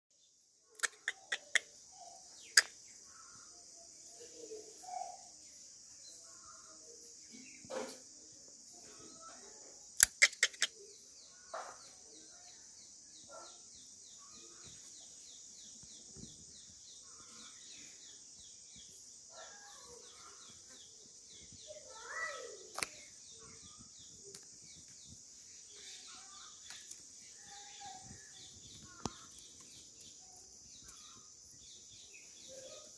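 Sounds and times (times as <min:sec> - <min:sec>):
faint bird calls: 0:00.7 - 0:05.3, 0:06.2 - 0:32.9
sharp clicks: 0:02.5 - 0:02.8, 0:10.0 - 0:10.7, 0:22.7 - 0:23.1.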